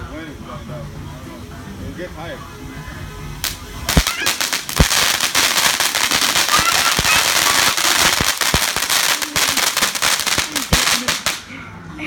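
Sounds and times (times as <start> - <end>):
fast crackling: 3.4 - 11.4
sharp pops: 3.4 - 11.4
firework spraying hiss: 3.4 - 11.6.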